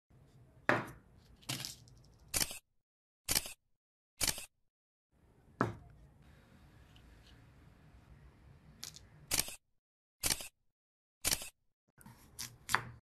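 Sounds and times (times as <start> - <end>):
camera shutter clicks: 4.2 - 4.5, 10.2 - 10.5.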